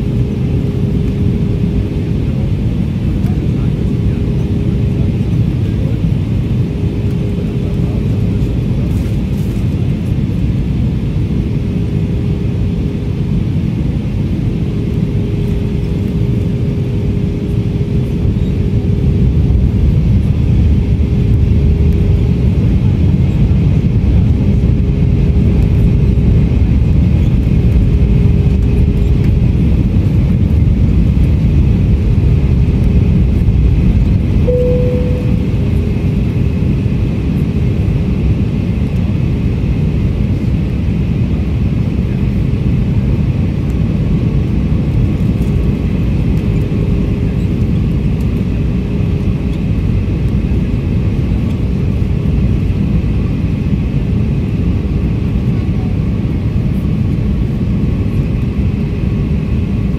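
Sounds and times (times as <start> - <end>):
jet engines rumbling: 0.0 - 59.9
brief cabin tone: 34.4 - 36.2
faint steady hum: 34.4 - 36.7.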